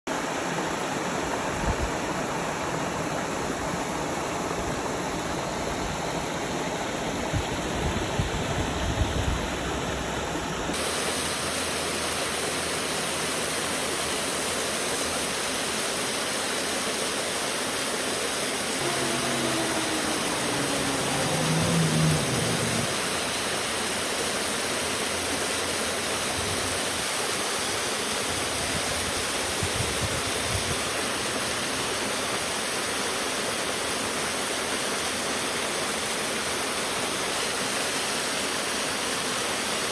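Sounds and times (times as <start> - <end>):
water rushing in rocky creek: 0.1 - 39.9
faint downward sliding tone: 18.4 - 23.8.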